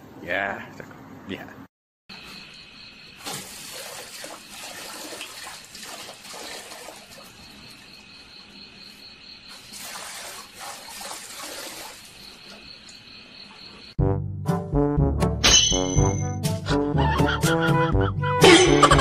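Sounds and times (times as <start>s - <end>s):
crickets chirping: 2.1s - 14.0s
water running from tap: 3.2s - 7.8s, 9.5s - 12.6s
water splashing into metal bucket: 3.2s - 7.9s, 9.5s - 12.7s.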